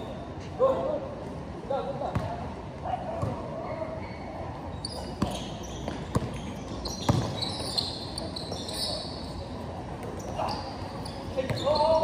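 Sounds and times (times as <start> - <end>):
basketball bouncing on concrete: 7.0 - 7.4.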